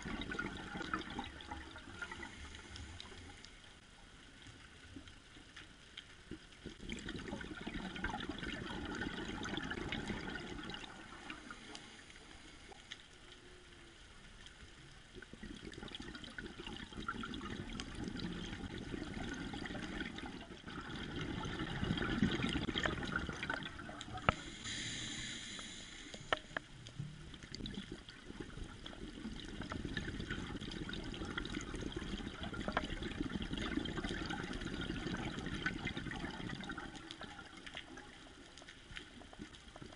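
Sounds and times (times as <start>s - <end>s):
muffled underwater regulator bubbling: 0.0s - 3.3s, 6.6s - 11.7s, 15.1s - 38.3s
short hiss: 24.3s - 26.7s.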